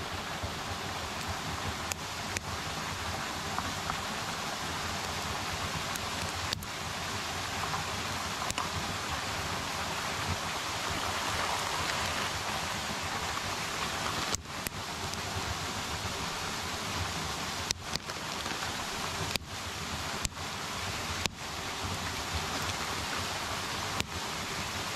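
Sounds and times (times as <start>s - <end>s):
running water: 0.0s - 24.9s.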